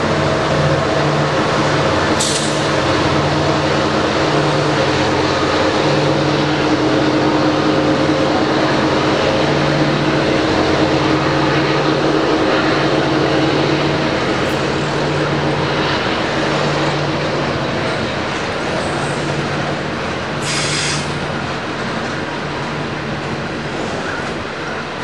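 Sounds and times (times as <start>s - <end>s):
diesel locomotive engine drone: 0.0s - 25.0s
wagons rumbling on rails: 0.0s - 25.0s.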